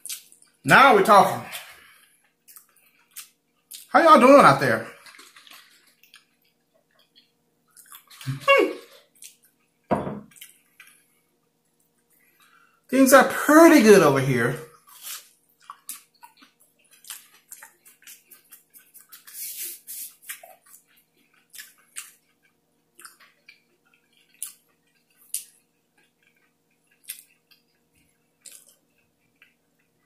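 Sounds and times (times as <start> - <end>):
close chewing with mouth clicks: 0.0 - 0.6, 1.5 - 3.9, 5.0 - 12.6, 14.7 - 30.0
lip smacks: 14.9 - 27.8, 28.4 - 29.6.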